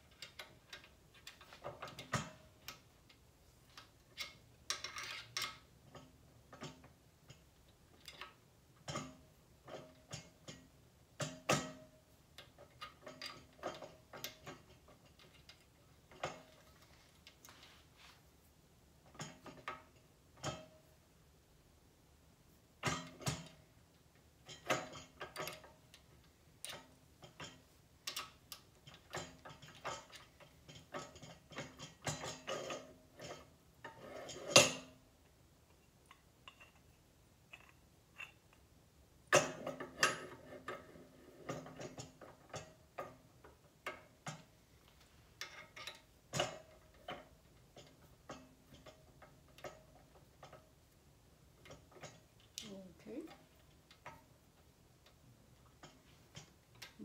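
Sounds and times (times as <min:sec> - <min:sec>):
metal parts clicking and scraping: 0:00.0 - 0:10.6, 0:12.4 - 0:18.0, 0:24.4 - 0:35.0, 0:35.7 - 0:38.7, 0:39.3 - 0:50.8.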